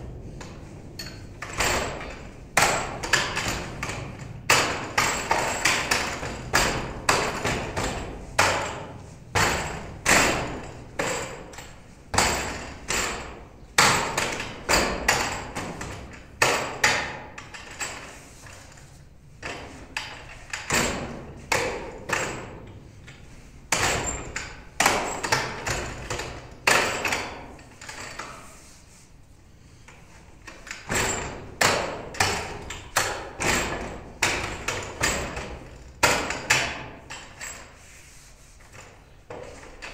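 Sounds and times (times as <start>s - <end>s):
knocks on wooden dummy: 12.1s - 17.2s.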